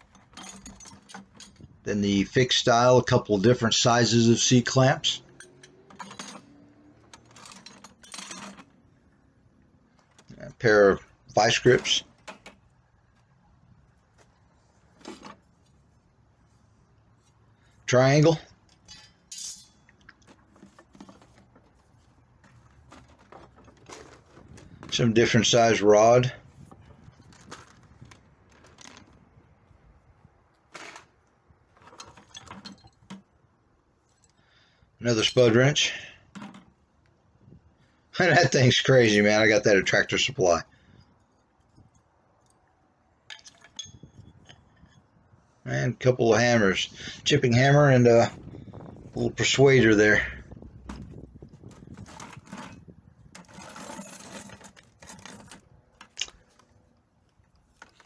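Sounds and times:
tools rattling in plastic bucket: 0.0 - 1.8, 4.7 - 9.1, 9.9 - 12.7, 14.9 - 15.6, 18.6 - 29.3, 30.7 - 33.4, 36.3 - 36.8, 50.5 - 56.8
metal tool clicks and clinks: 5.1 - 8.7, 18.7 - 20.2, 43.3 - 45.0
scraping rustle: 18.8 - 29.8, 48.0 - 58.0.

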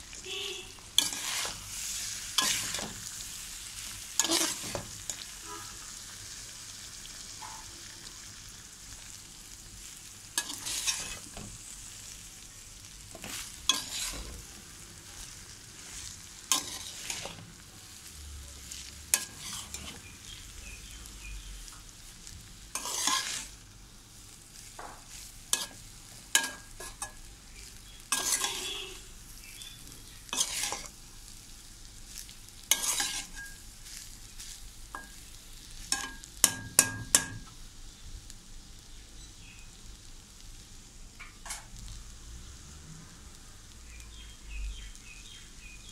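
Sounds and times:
frying hiss: 0.0 - 45.9
rice stirred in metal pot: 0.1 - 5.7, 10.4 - 12.2, 13.1 - 14.6, 15.2 - 17.6, 18.6 - 20.3, 22.6 - 23.6, 24.6 - 31.0, 32.0 - 37.5.

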